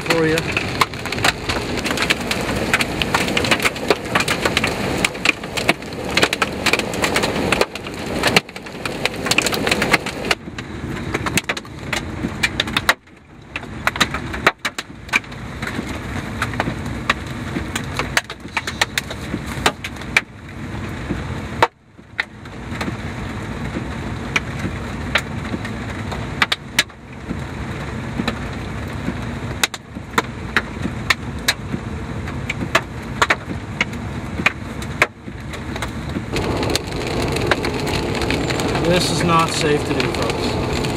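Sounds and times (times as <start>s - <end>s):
hailstones pelting a car: 0.0s - 40.9s
rush of noise: 36.3s - 40.9s.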